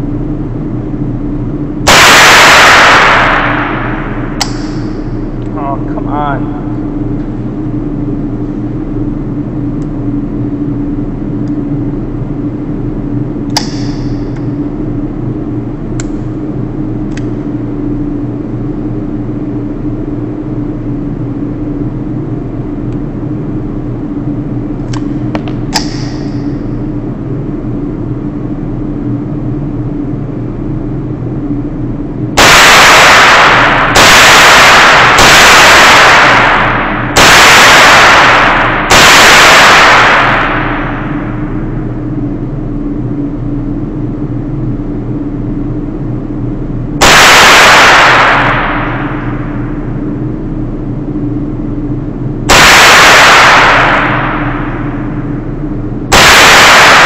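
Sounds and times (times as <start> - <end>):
steady low hum: 0.0 - 57.0
rifle shots echoing indoors: 1.8 - 5.4, 32.4 - 43.6, 47.0 - 57.0.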